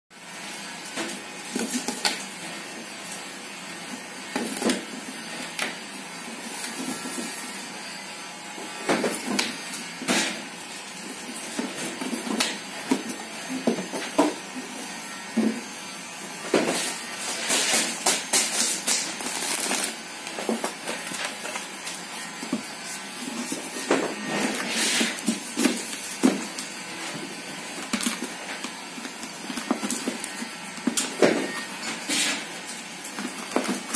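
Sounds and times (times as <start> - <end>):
cardboard sliding and scraping: 22.5 - 27.3.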